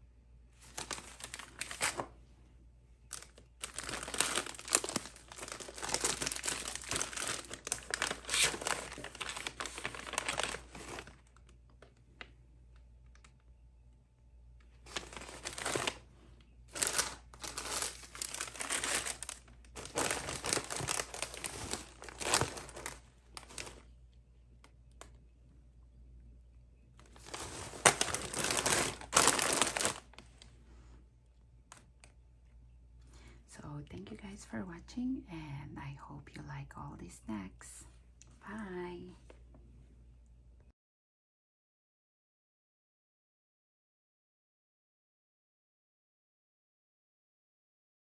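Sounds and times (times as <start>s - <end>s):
plastic bags crinkling: 0.6s - 2.1s, 3.1s - 12.3s, 14.8s - 23.9s, 27.0s - 30.5s.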